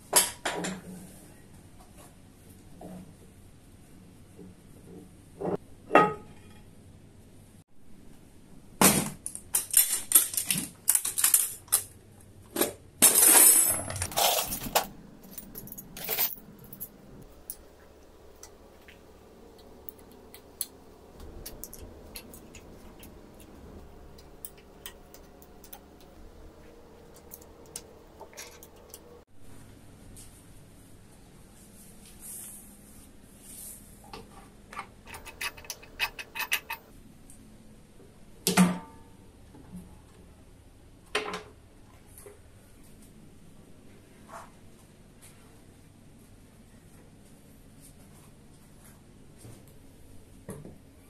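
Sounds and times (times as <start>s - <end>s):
metal tools clattering in toolbox: 13.0s - 17.6s, 27.2s - 29.2s, 35.1s - 36.9s.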